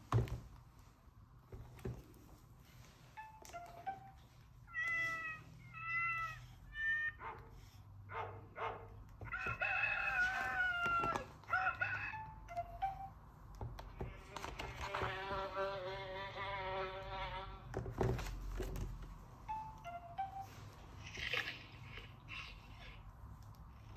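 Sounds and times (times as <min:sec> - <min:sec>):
cat meowing from small speaker: 0:04.7 - 0:07.2
rooster crowing: 0:09.3 - 0:12.4.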